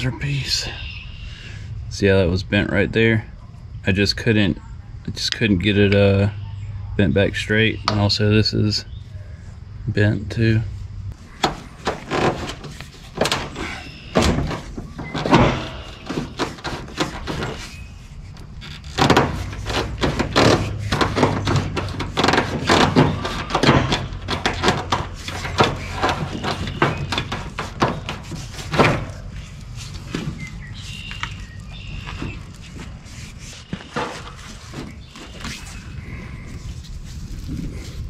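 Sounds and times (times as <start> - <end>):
tools and metal parts clanking: 11.4 - 35.8.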